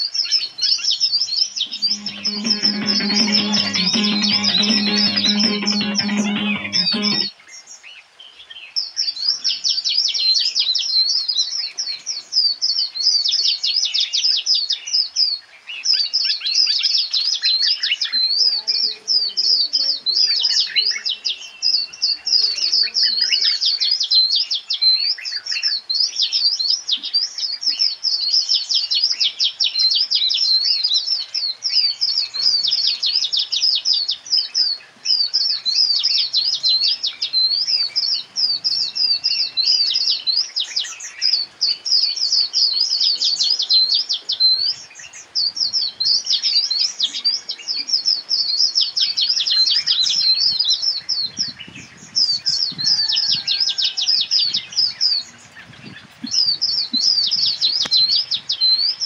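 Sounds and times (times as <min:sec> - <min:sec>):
small birds chirping: 0:54.1 - 0:59.0.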